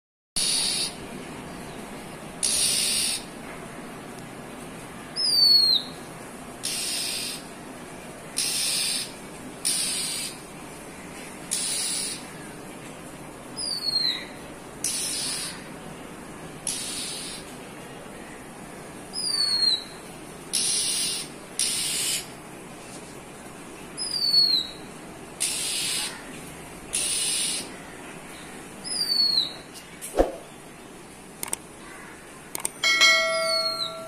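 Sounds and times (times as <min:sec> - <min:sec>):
songbird harsh hissing calls: 0:00.4 - 0:01.0, 0:02.4 - 0:03.3, 0:06.6 - 0:07.5, 0:08.4 - 0:10.4, 0:11.5 - 0:12.4, 0:14.8 - 0:15.7, 0:16.6 - 0:17.5, 0:20.5 - 0:22.3, 0:25.4 - 0:26.3, 0:26.9 - 0:27.9.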